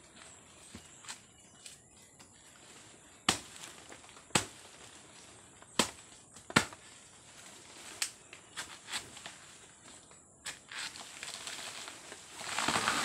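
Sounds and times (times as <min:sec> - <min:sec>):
machete chopping stalk: 0:04.3 - 0:04.6, 0:05.7 - 0:06.8.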